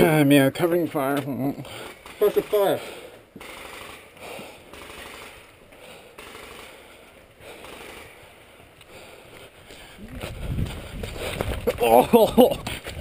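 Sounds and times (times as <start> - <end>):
paintball markers firing: 1.1 - 2.8.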